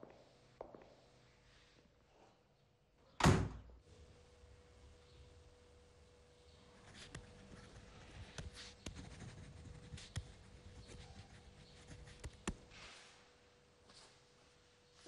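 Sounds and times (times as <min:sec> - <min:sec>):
low steady hum: 0:03.6 - 0:13.8.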